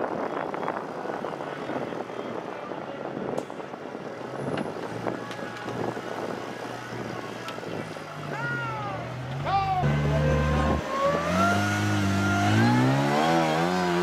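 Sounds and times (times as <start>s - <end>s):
buggy engine revving: 4.4s - 14.0s.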